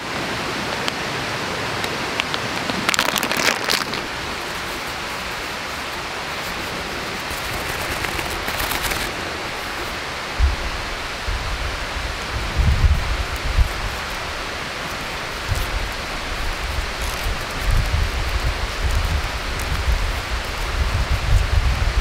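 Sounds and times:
rushing outdoor noise: 0:00.0 - 0:22.0
short crackles: 0:02.2 - 0:10.0, 0:13.2 - 0:21.6.

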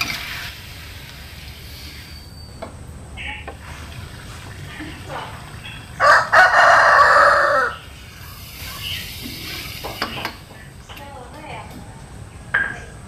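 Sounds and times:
rooster crowing: 0:06.0 - 0:07.9.

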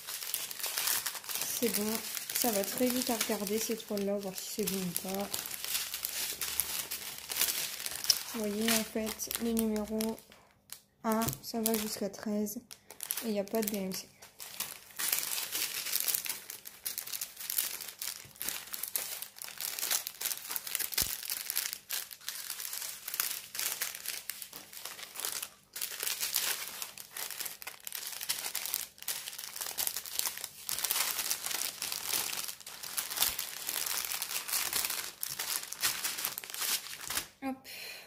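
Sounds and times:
plastic packaging crinkling: 0:00.0 - 0:37.4.

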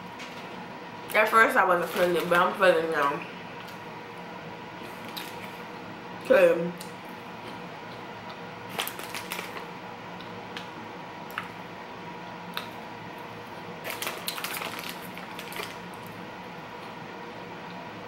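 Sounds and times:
plastic snack bag crinkling: 0:04.9 - 0:05.6, 0:08.7 - 0:09.7, 0:13.8 - 0:16.1
crunching snack: 0:08.7 - 0:09.7, 0:13.8 - 0:15.9.

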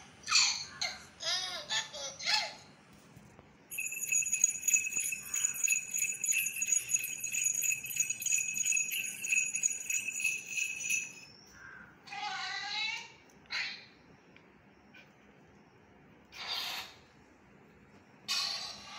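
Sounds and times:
bells jingling rapidly: 0:03.7 - 0:11.3
steady ringing tones: 0:03.7 - 0:11.4.

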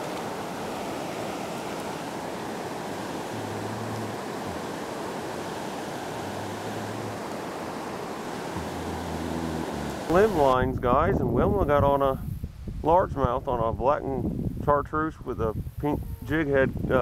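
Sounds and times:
river water rushing over rocks: 0:00.0 - 0:10.5.

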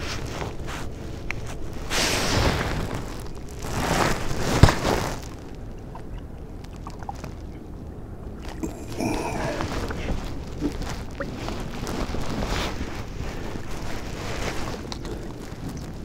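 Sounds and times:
water lapping at kayak: 0:02.0 - 0:08.8.

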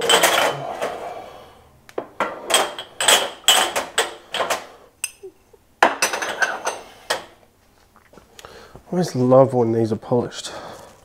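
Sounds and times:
kitchenware knocking and clinking: 0:00.0 - 0:01.0, 0:02.0 - 0:05.2, 0:05.8 - 0:07.3.

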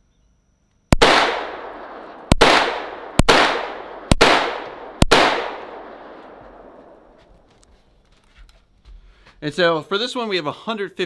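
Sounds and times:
pistol shots echoing: 0:01.0 - 0:07.1.

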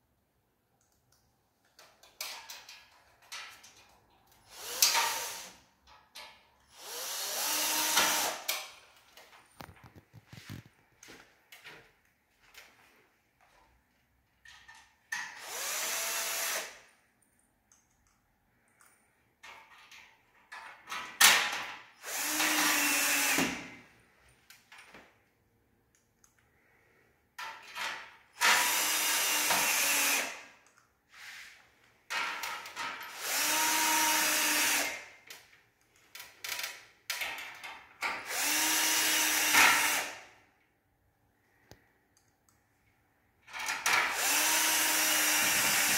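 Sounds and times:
cordless drill driving screws: 0:04.4 - 0:05.6, 0:06.7 - 0:08.6, 0:15.2 - 0:16.9, 0:22.0 - 0:23.6, 0:28.4 - 0:30.5, 0:33.1 - 0:35.0, 0:38.2 - 0:40.2, 0:43.8 - 0:45.9.

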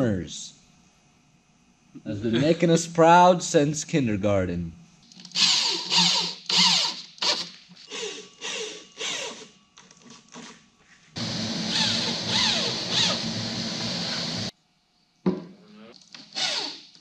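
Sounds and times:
electric drill driving screws: 0:05.2 - 0:09.5, 0:11.2 - 0:14.5, 0:16.1 - 0:17.0.

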